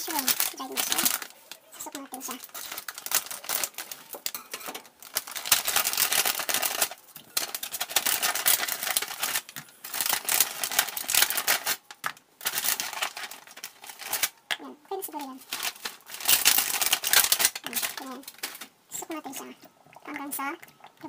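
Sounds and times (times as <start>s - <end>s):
dried mushrooms rattling: 0.0s - 14.4s, 15.0s - 18.7s
plastic bag crinkling: 0.0s - 19.5s.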